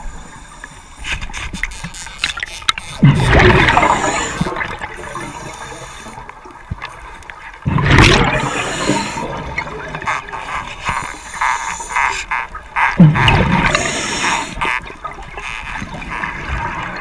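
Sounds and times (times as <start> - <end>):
regulator bubbling underwater: 3.0 - 6.8, 7.6 - 10.8, 12.0 - 17.0.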